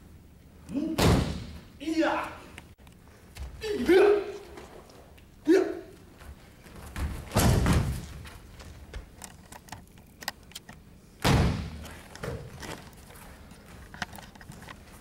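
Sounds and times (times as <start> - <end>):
body thudding on a mat: 6.8 - 8.4.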